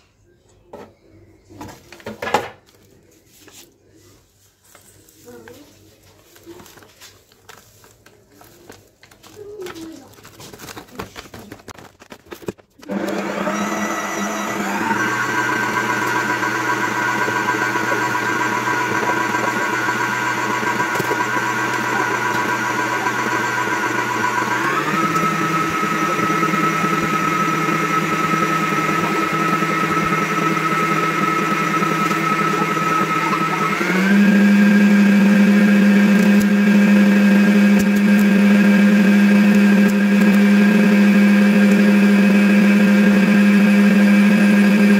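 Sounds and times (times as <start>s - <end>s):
electric hand mixer running: 12.8s - 44.9s.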